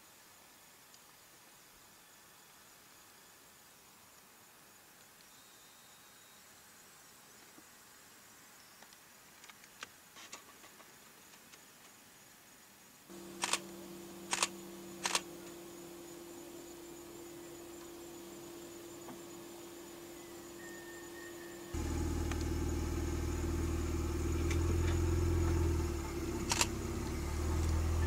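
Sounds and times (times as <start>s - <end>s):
vehicle engine idling: 13.1s - 28.0s
camera shutter clicks: 13.4s - 13.7s, 14.3s - 15.3s, 26.5s - 26.7s.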